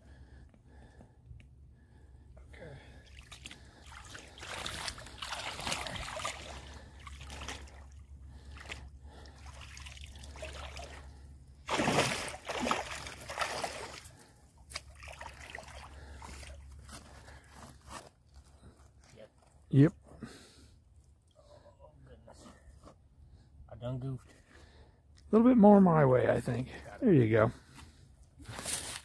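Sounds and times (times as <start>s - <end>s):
water sloshing and splashing: 3.0s - 17.4s.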